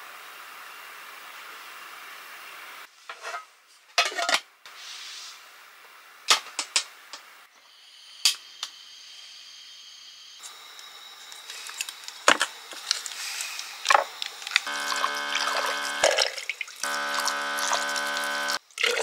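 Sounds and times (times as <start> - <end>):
metal cookware clinking: 4.0 - 4.4
high-pitched hum: 14.6 - 18.6.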